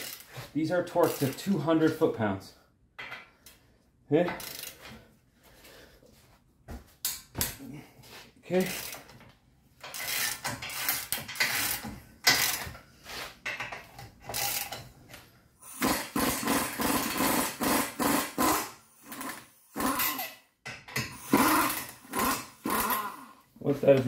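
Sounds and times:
wrench clanking and scraping: 0.0 - 2.0, 4.2 - 5.0, 8.6 - 15.3
pneumatic air tool running: 15.6 - 20.4, 21.2 - 23.3.

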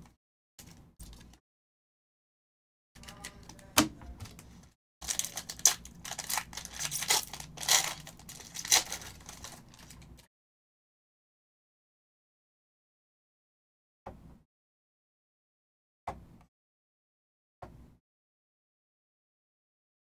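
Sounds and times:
foil wrapper crinkling and tearing: 5.0 - 10.3.

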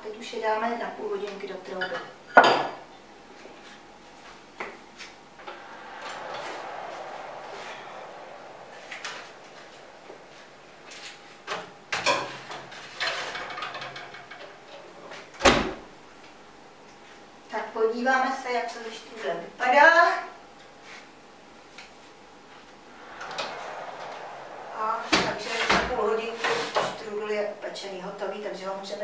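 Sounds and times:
soft rushing noise: 4.9 - 13.0, 22.5 - 27.6.

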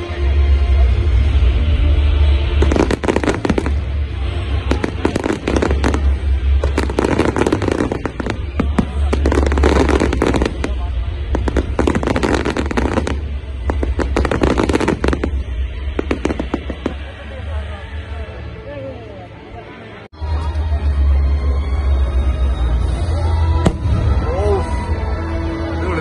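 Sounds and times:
fireworks crackling and banging: 0.3 - 18.2.

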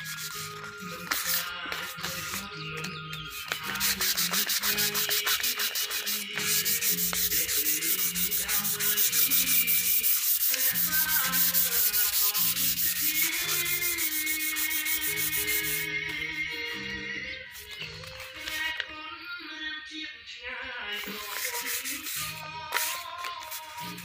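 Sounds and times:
sandpaper rubbing on wood: 0.0 - 2.6, 3.2 - 15.9, 21.0 - 24.0.

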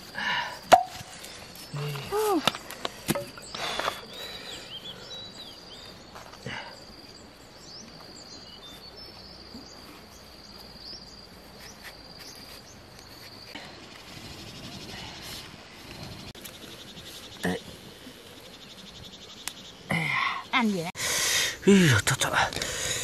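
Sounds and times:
insect trilling: 0.0 - 7.2
bird chirps: 3.3 - 15.3.

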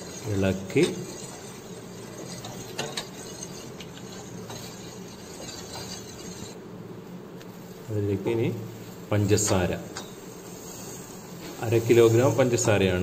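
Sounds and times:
metal ladle stirring in pot: 0.0 - 6.6
steady hiss: 0.0 - 13.0.

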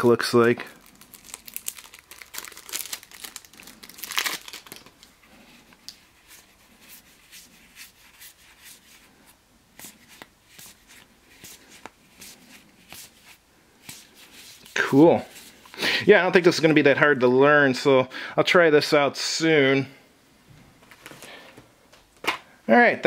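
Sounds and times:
cards rustling: 0.0 - 15.9
cards scraping: 9.8 - 15.9.

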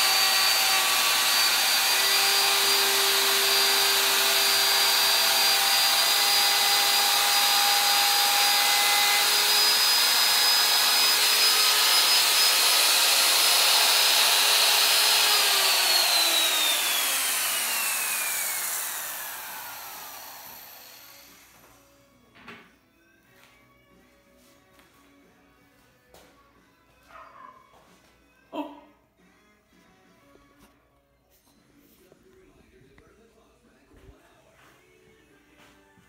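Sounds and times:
router motor whining: 0.0 - 21.8.

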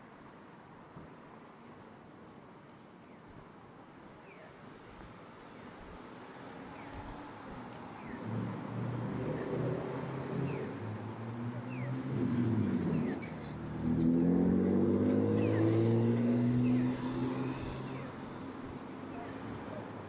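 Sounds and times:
vehicle accelerating loudly: 11.9 - 18.3
vehicle engines running: 12.0 - 20.0.

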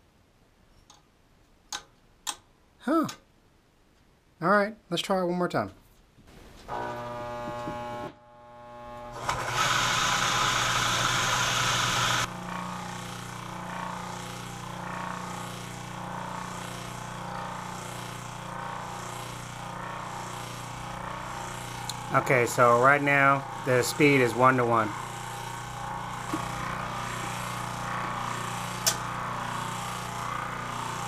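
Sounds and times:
electric motor humming and whirring: 6.6 - 31.0.

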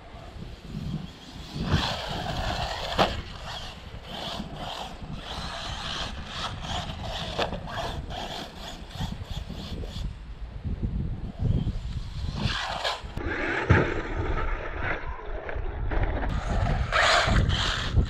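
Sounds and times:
electric motor whining: 0.7 - 10.0.

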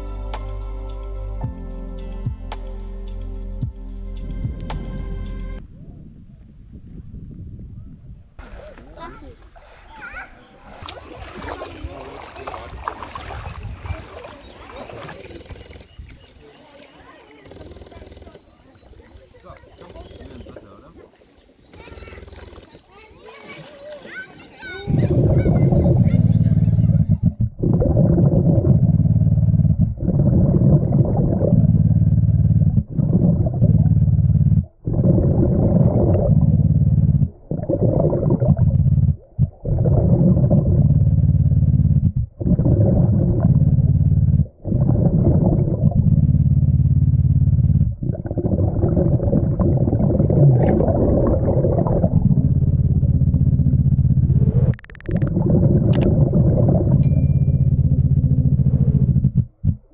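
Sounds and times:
underwater rumbling and rushing: 10.8 - 16.3, 24.6 - 59.9.

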